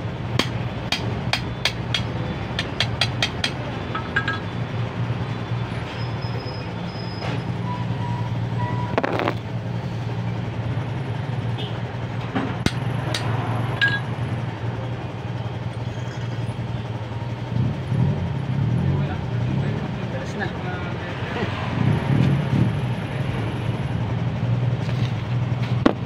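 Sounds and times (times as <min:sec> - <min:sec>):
vehicle engine humming: 0:00.0 - 0:26.0
hand tools clicking on metal: 0:00.4 - 0:04.4, 0:12.6 - 0:14.0.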